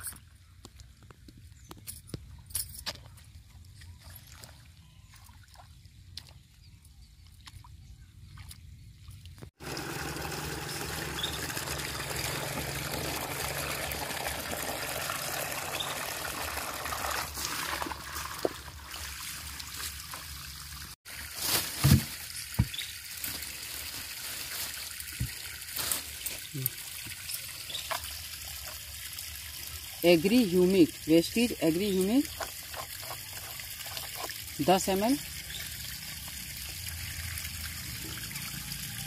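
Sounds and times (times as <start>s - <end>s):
hose water pouring into bucket: 9.5s - 39.0s
plastic bag rustling: 21.1s - 26.4s.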